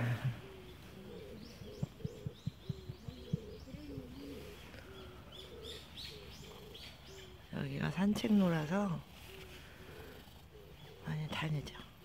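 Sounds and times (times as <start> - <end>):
dove cooing: 0.0 - 7.5, 9.2 - 11.2
small bird chirping: 0.3 - 12.0
soft low taps: 1.5 - 4.2.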